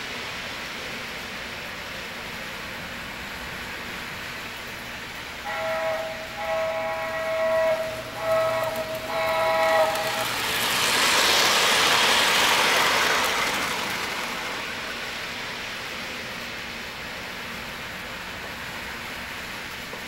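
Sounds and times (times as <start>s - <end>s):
model train wheels rumbling: 0.0s - 20.0s
model train horn blasts: 5.4s - 10.4s.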